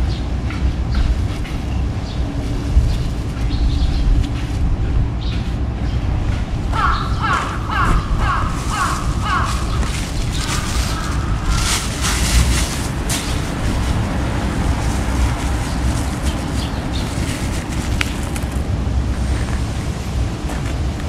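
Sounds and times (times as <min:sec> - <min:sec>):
distant traffic: 0:00.0 - 0:21.0
wind: 0:00.0 - 0:21.0
faint rustles: 0:08.2 - 0:19.9.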